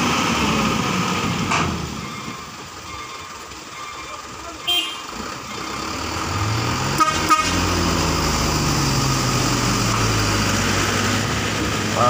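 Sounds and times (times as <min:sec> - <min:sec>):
truck diesel engine pulling uphill: 0:00.0 - 0:12.0
truck horn toots: 0:04.6 - 0:05.2, 0:06.8 - 0:07.8.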